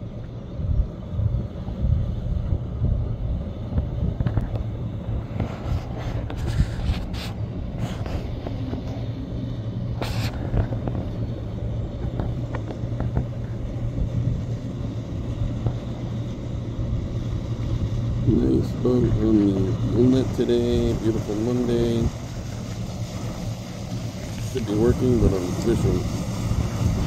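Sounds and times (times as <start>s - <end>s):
outboard motors droning: 0.0s - 27.0s
brief hisses: 10.0s - 10.5s.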